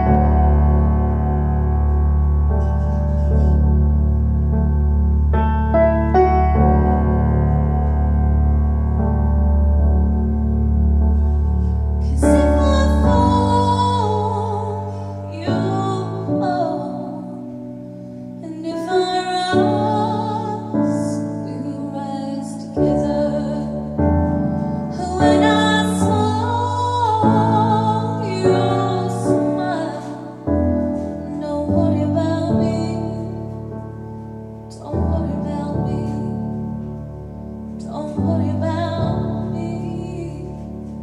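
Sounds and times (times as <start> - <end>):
piano accompaniment: 0.0 - 41.0
woman singing a ballad: 12.0 - 17.6, 18.4 - 34.0, 34.6 - 36.9, 37.8 - 41.0.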